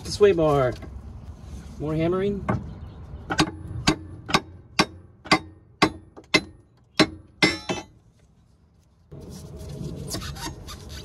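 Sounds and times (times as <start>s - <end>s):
sledgehammer striking metal bar: 3.3s - 8.0s.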